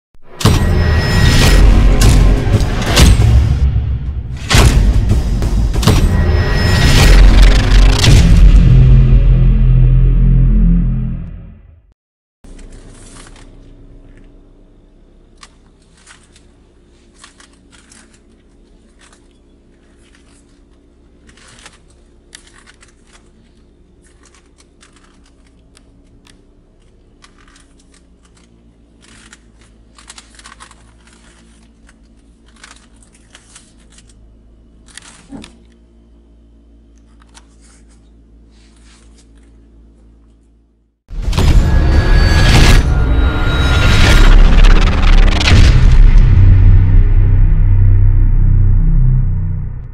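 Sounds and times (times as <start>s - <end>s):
car cabin low hum: 12.5s - 40.9s.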